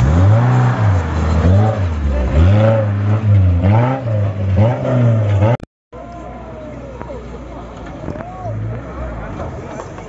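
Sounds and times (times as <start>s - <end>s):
off-road vehicle engine revving: 0.0s - 5.7s.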